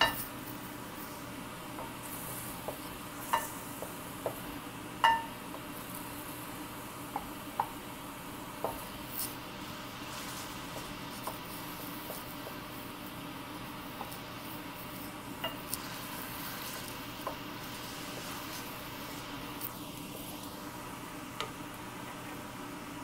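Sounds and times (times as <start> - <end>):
chicken sizzling in a pan: 0.0 - 23.0
wooden spatula knocking on pan: 2.6 - 5.6, 7.1 - 7.8, 10.7 - 12.6, 17.2 - 17.5.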